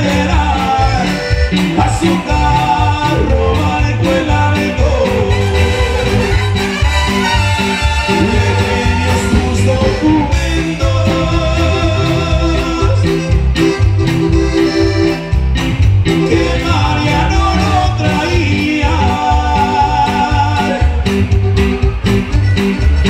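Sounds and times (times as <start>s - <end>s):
congas: 0.0s - 23.0s
electric guitar: 0.0s - 23.0s
live band playing latin dance music: 0.0s - 23.0s
saxophone: 5.2s - 10.6s, 13.3s - 15.5s.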